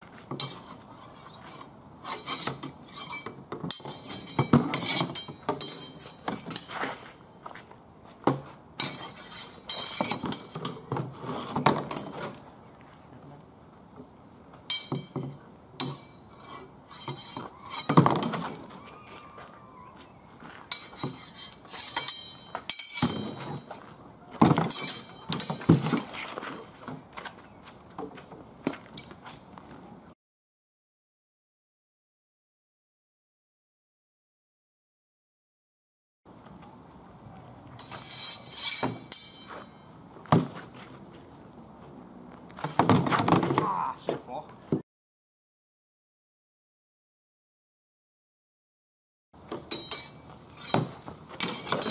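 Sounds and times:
swords and shields clashing: 0:00.3 - 0:07.0, 0:08.3 - 0:12.3, 0:14.7 - 0:19.3, 0:20.6 - 0:27.0, 0:37.8 - 0:40.6, 0:42.6 - 0:44.2, 0:49.5 - 0:51.9
metallic ringing: 0:00.4 - 0:06.7, 0:14.7 - 0:18.0, 0:20.7 - 0:23.7, 0:24.7 - 0:25.7, 0:37.8 - 0:40.0, 0:49.7 - 0:51.9.

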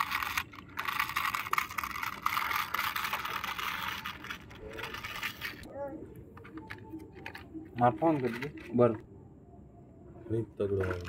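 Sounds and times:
plastic toy wheels rolling: 0:00.0 - 0:05.7, 0:06.4 - 0:09.0, 0:10.8 - 0:11.0.

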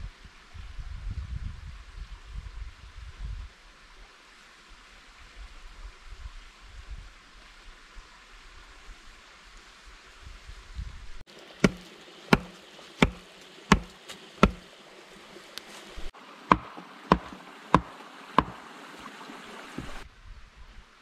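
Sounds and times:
logs being hammered: 0:11.6 - 0:14.6, 0:16.5 - 0:18.6.

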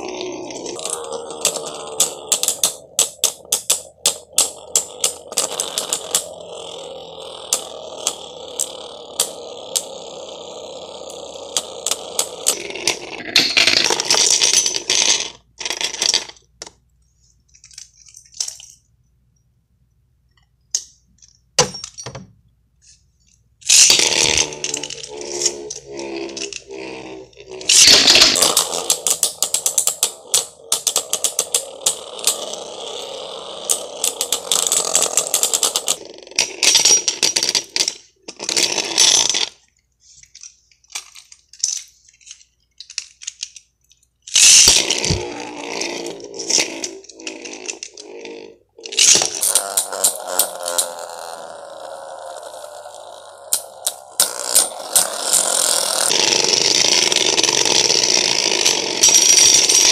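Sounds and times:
spinning tops whirring: 0:00.0 - 0:16.2, 0:23.6 - 0:39.6, 0:44.3 - 0:59.9
spinning tops clashing clicks: 0:00.0 - 0:16.4, 0:23.6 - 0:39.6, 0:44.3 - 0:48.2, 0:48.8 - 0:59.9.

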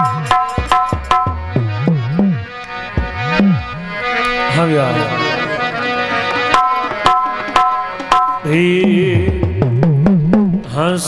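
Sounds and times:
hand drums striking: 0:00.0 - 0:03.7, 0:06.6 - 0:10.7
low sliding notes: 0:00.0 - 0:10.8
harmonium and keyboard notes: 0:00.0 - 0:11.0.

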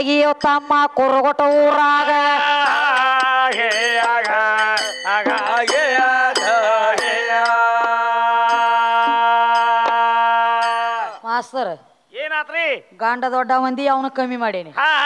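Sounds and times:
hand cymbals clinking: 0:00.0 - 0:09.8
men singing folk ballad: 0:01.6 - 0:11.2.

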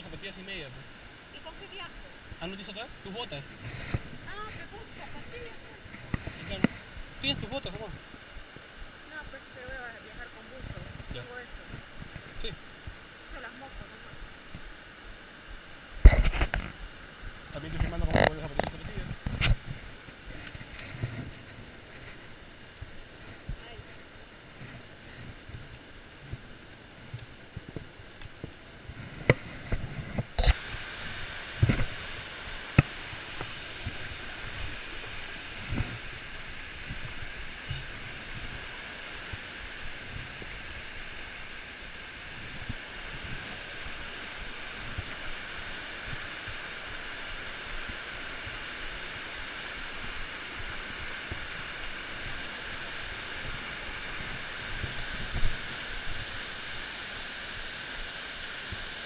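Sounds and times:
waterfall rushing: 0:30.4 - 0:59.0.

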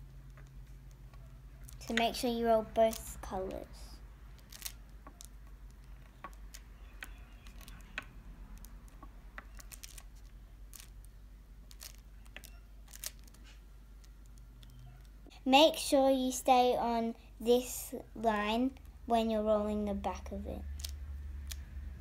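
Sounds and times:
beeswax sheet clicking and crackling: 0:00.0 - 0:15.3, 0:20.1 - 0:22.0.

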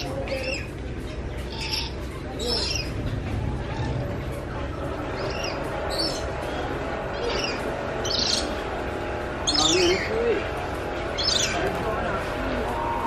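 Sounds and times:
bird calling: 0:00.0 - 0:08.8, 0:09.4 - 0:10.4, 0:11.1 - 0:13.0
low background noise: 0:00.0 - 0:13.0.

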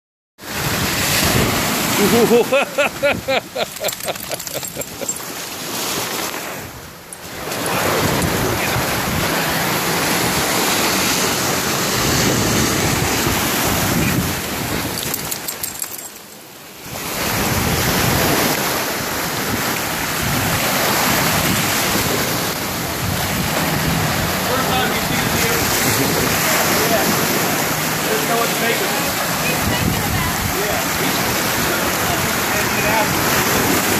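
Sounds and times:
waves washing on sandy beach: 0:00.4 - 0:33.9
wind buffeting microphone: 0:16.9 - 0:28.0, 0:29.2 - 0:33.9.

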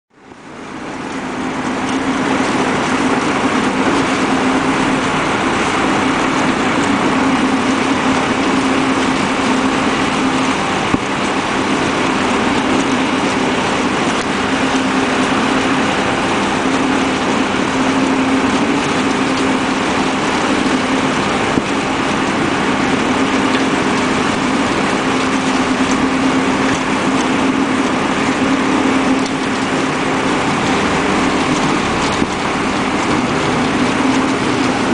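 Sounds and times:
paddles churning silage: 0:00.1 - 0:34.9
tractor running: 0:00.1 - 0:34.9.

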